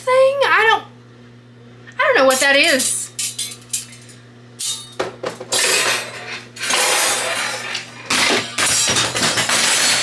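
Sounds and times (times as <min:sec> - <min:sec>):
kitchenware clattering onto floor: 0:04.6 - 0:10.0.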